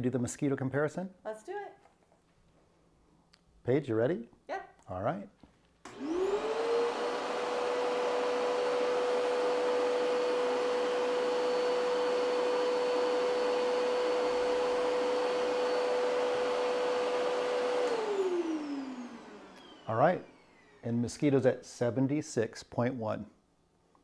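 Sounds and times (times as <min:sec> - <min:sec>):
vacuum cleaner motor whine: 0:05.9 - 0:21.3.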